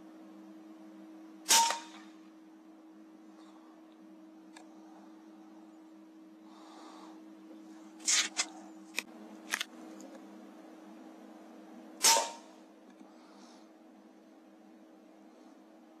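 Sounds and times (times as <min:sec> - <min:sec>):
faint steady hum: 0:00.0 - 0:16.0
air rifle shot crack: 0:01.5 - 0:02.1, 0:12.0 - 0:12.5.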